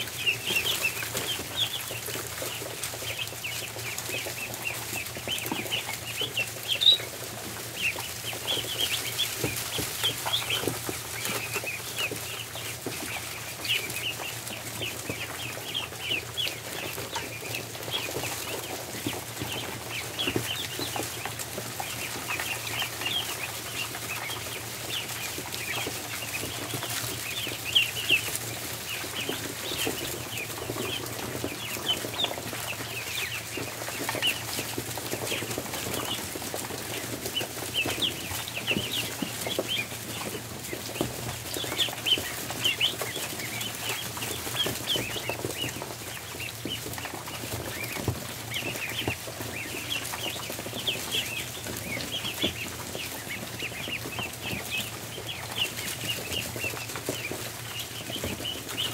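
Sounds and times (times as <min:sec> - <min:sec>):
ducklings peeping: 0:00.0 - 0:58.9.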